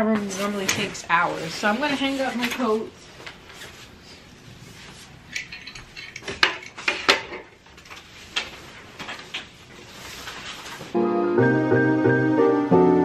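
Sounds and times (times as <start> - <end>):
fabric rustling: 8.0 - 11.0.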